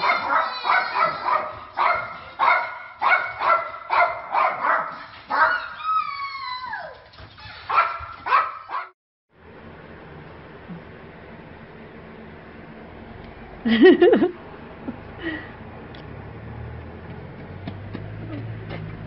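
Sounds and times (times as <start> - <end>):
small dog barking: 0.0 - 5.8, 7.7 - 8.9
dog whining: 5.3 - 7.8.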